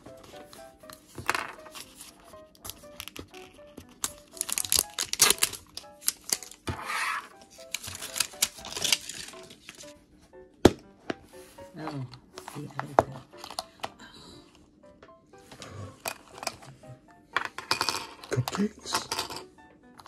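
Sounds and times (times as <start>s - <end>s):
soft background music: 0.0s - 20.0s
plastic packaging crinkling and tearing: 3.9s - 6.7s, 7.5s - 9.9s.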